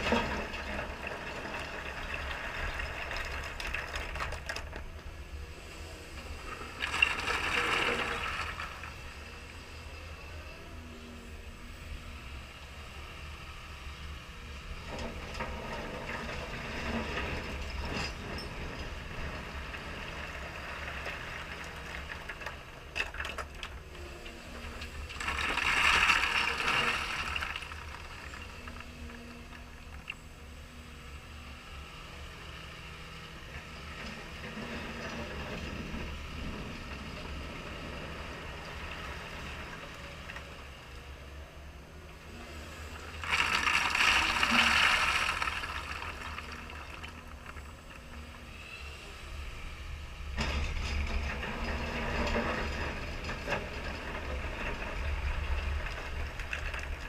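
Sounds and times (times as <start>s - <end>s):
stone pouring from bucket: 6.6s - 8.9s, 25.0s - 29.1s, 43.2s - 47.7s.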